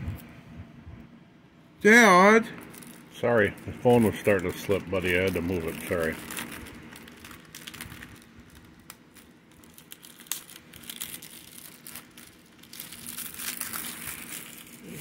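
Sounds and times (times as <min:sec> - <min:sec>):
plastic wrap crinkling and tearing: 0:02.5 - 0:15.0.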